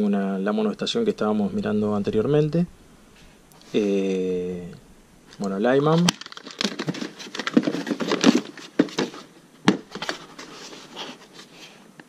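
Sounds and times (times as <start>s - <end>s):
scraping plastic: 5.3s - 11.7s
rustling cardboard packaging: 5.4s - 11.8s.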